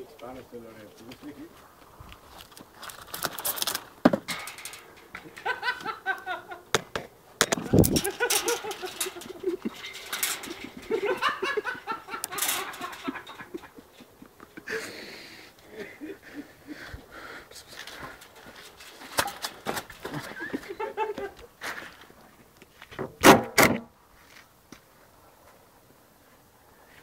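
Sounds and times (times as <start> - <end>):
rustling: 1.0 - 6.2, 7.5 - 14.1, 17.6 - 20.8
chickens clucking and cackling: 8.0 - 14.7.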